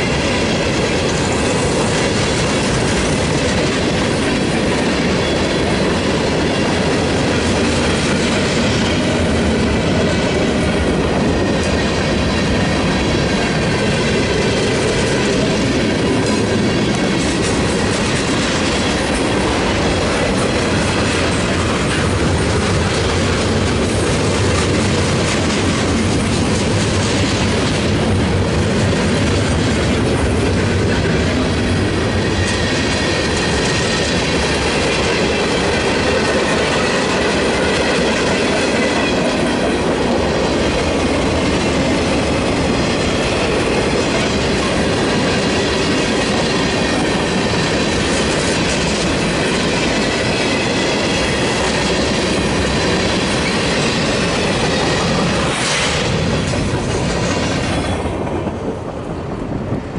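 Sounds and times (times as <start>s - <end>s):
clickety-clack over rail joints: 0.0s - 59.9s
steel wheels rumbling on rail: 0.0s - 59.9s.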